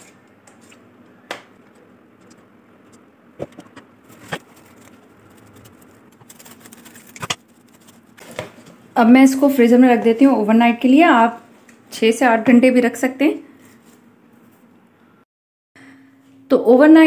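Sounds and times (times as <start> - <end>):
cling film rustling: 3.4 - 8.7.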